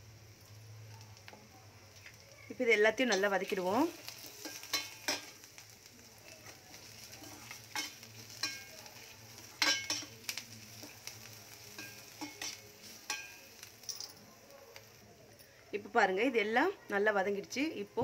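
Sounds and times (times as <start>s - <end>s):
onions sizzling in oil: 0.0s - 18.0s
spoon scraping and clinking pan: 4.3s - 5.4s, 7.2s - 8.8s, 9.6s - 10.1s, 11.7s - 14.0s.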